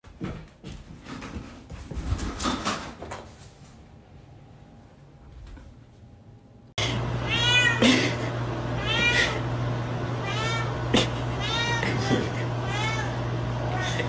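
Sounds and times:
cat meowing: 0:07.2 - 0:07.8, 0:08.8 - 0:09.4, 0:10.2 - 0:14.0.

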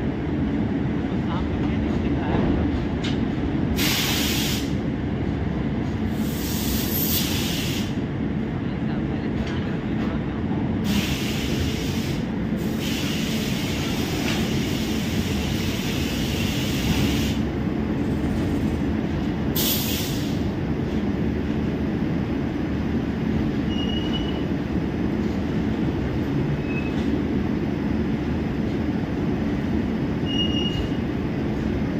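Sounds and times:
locomotive machinery drone: 0:13.8 - 0:31.9
short high squeaks: 0:26.6 - 0:27.0, 0:30.3 - 0:31.0.

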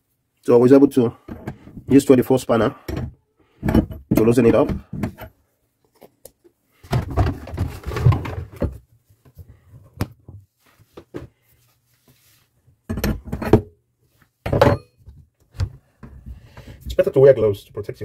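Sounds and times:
rubbing and knocking: 0:06.8 - 0:09.6.

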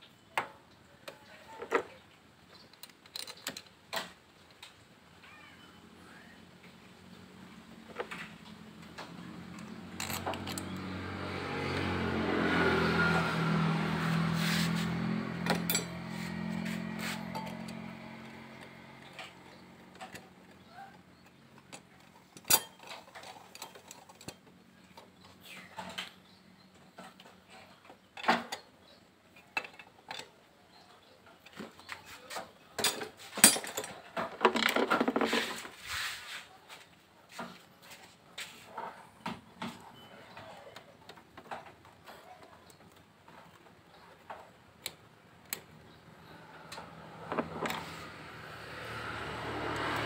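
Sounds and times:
motorcycle engine: 0:07.2 - 0:29.0, 0:39.6 - 0:50.0
hand tools clinking: 0:14.4 - 0:17.9, 0:22.4 - 0:24.4, 0:32.8 - 0:34.0.

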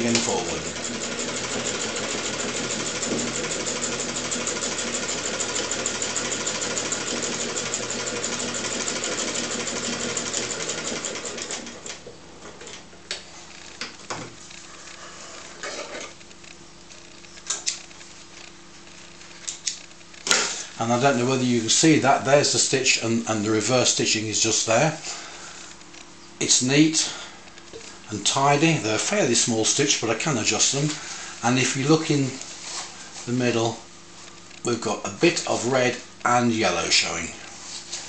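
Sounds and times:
sewing machine clatter: 0:00.0 - 0:12.0.

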